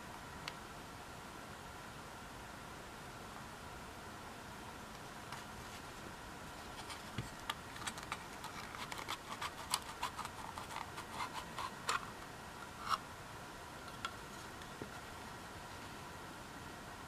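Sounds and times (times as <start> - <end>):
faint hiss: 0.0 - 17.0
plastic clicks and scrapes: 6.7 - 13.0.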